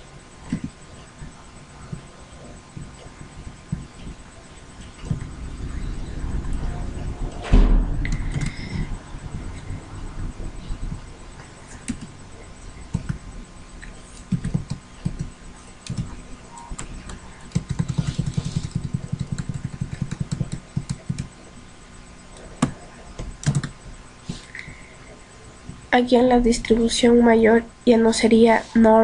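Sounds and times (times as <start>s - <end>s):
keyboard typing: 8.0s - 8.9s, 11.6s - 12.2s, 12.9s - 13.2s, 13.8s - 21.3s, 22.4s - 23.8s.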